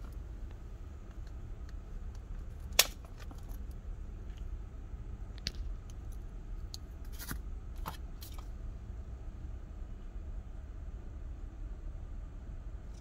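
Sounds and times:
sharp plastic click: 2.7 - 3.4.

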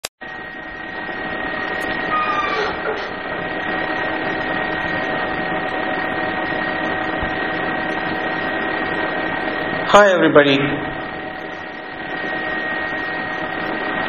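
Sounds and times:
electrical hum: 0.2 - 14.0
thin high whine: 0.2 - 14.0
faint short squeaks: 2.0 - 3.2.

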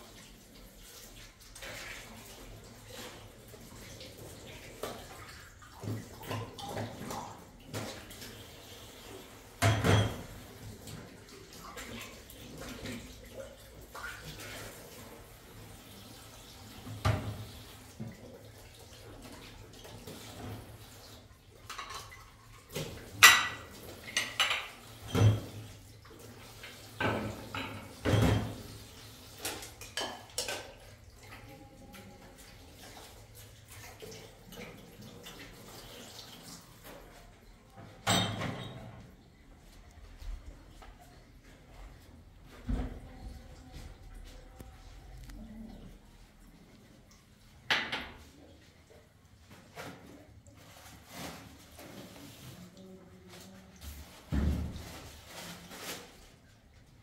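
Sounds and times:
dishes and pots clinking: 9.6 - 10.5, 21.7 - 25.7, 27.0 - 28.7, 29.4 - 31.0, 37.8 - 39.1.

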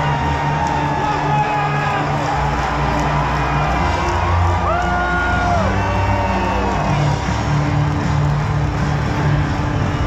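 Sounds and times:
crowd whooping: 0.0 - 7.4
music with pulsing beat: 0.0 - 10.0
stadium crowd noise: 0.0 - 10.0.

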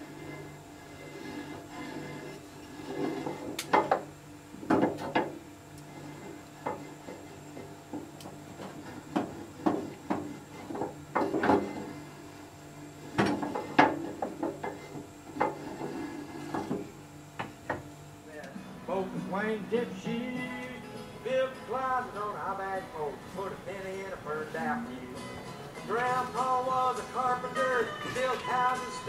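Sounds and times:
steady low hum: 0.0 - 29.0
wood knocking on metal: 3.4 - 5.4.

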